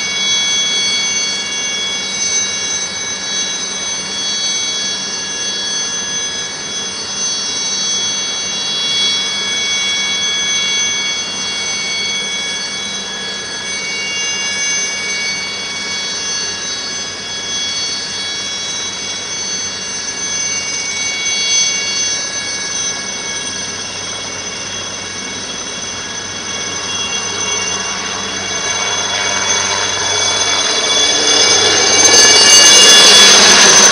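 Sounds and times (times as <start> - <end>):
helicopter turbine whine: 0.0 - 33.9
low rotor hum: 8.4 - 33.9
rushing noise: 25.2 - 33.9.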